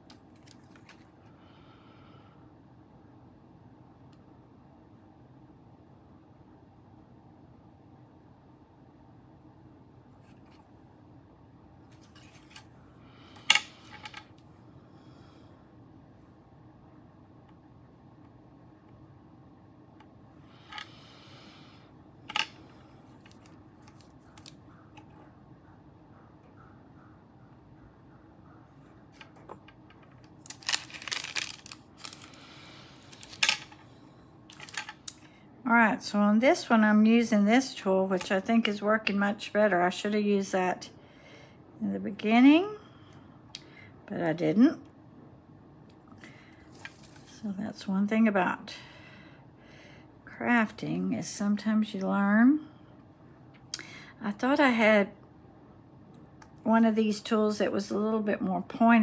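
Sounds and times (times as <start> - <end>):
paper rustling on a tabletop: 11.9 - 12.7, 30.1 - 33.8, 46.7 - 47.4.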